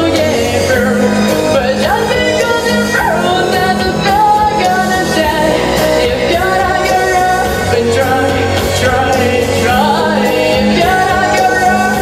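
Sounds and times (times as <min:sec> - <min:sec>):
backing music: 0:00.0 - 0:12.0
girl singing pop song: 0:00.0 - 0:12.0.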